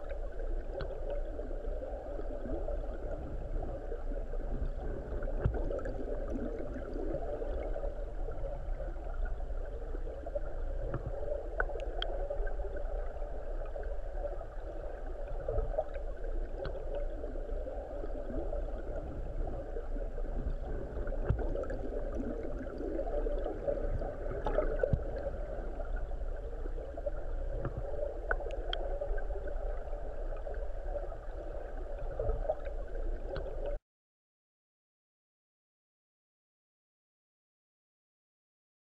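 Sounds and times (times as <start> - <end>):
river current underwater: 0.0 - 33.8
faint clicks: 0.1 - 1.4, 10.2 - 12.9, 15.2 - 17.2, 19.8 - 29.8.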